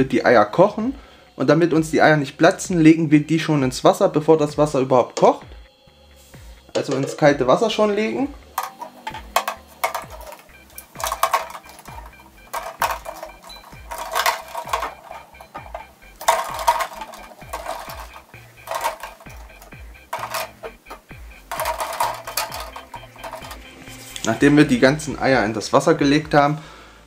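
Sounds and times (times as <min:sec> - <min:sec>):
eggshells clinking on metal pot: 0:08.5 - 0:23.9.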